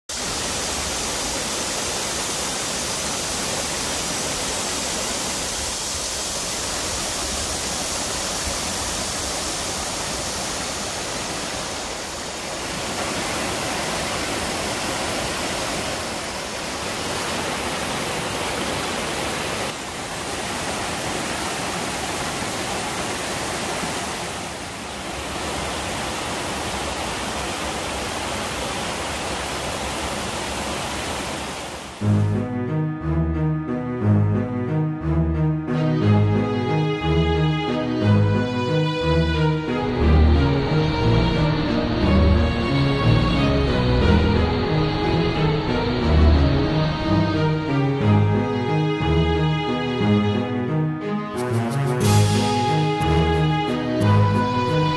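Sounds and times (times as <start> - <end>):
stream rushing over rocks: 0.1 - 32.0.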